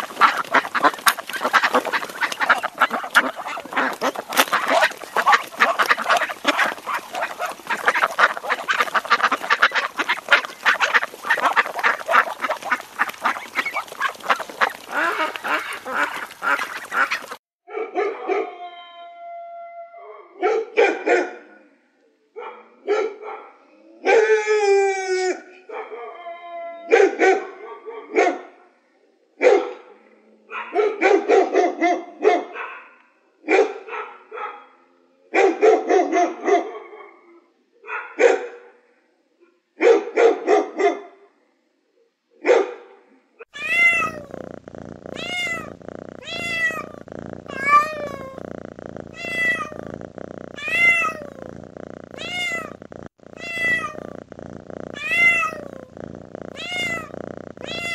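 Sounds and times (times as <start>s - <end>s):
dog barking: 0.0s - 18.6s, 20.2s - 21.6s, 22.4s - 24.3s, 25.7s - 26.2s, 26.9s - 28.7s, 29.4s - 38.8s, 39.8s - 41.3s, 42.4s - 43.0s
cat meowing: 43.6s - 57.9s.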